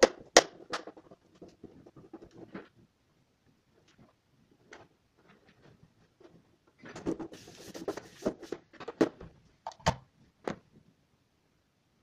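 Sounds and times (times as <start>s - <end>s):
rubbing on tv panel: 7.2s - 8.6s.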